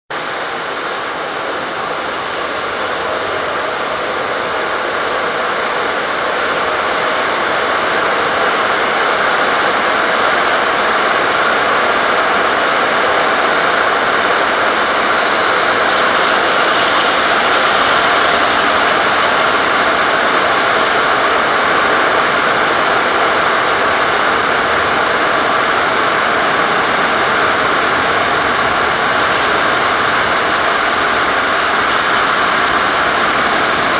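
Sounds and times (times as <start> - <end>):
car wash water spray: 0.2 - 33.9
spinning wheel brushes: 15.0 - 19.7.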